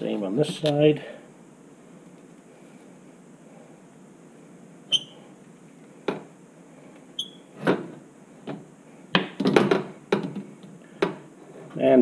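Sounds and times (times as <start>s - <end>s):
short high squeaks: 4.9s - 5.3s, 7.2s - 7.6s.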